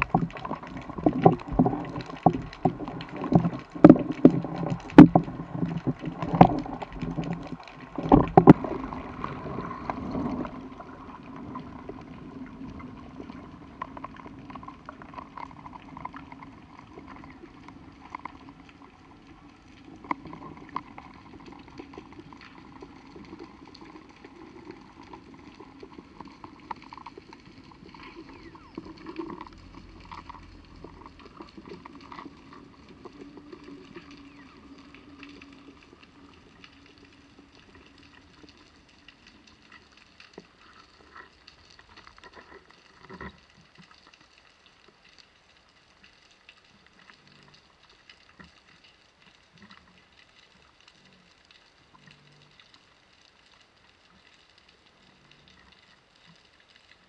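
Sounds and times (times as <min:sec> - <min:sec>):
underwater crackle of tiny clicks: 0:00.0 - 0:57.0
low hum: 0:28.1 - 0:39.7.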